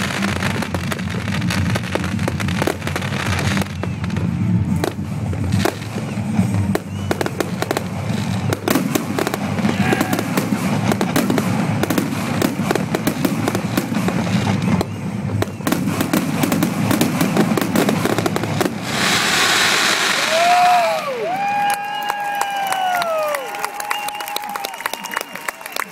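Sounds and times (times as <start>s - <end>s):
fireworks bangs and crackling: 0.0s - 23.4s
crowd cheering and applauding: 2.9s - 11.3s, 19.4s - 25.9s.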